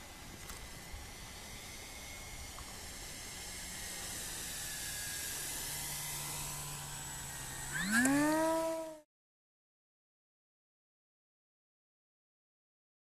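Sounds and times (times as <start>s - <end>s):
model plane propeller hiss: 0.0s - 9.0s
electric motor whine: 0.0s - 9.1s.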